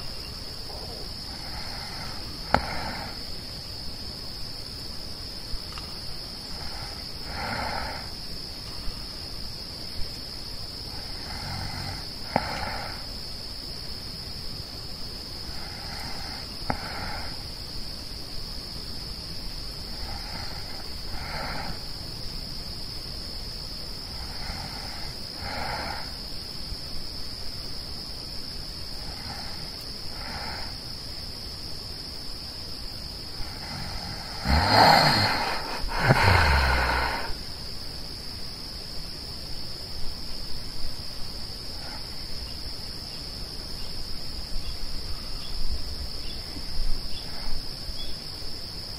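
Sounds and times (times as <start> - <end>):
night insects chirring: 0.0 - 48.9
sleeper breathing heavily: 0.7 - 3.4, 6.4 - 8.2, 10.9 - 13.1, 15.4 - 17.4, 19.9 - 21.9, 24.0 - 26.2, 33.3 - 37.5.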